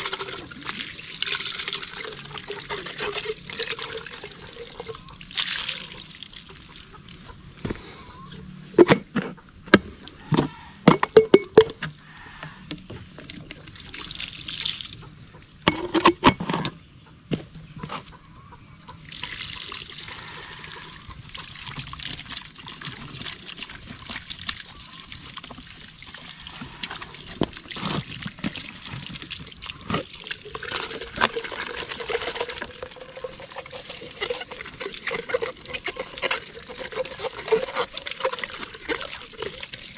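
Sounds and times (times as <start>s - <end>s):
water trickling into plastic jars: 0.0s - 7.5s, 12.4s - 15.1s, 19.0s - 39.9s.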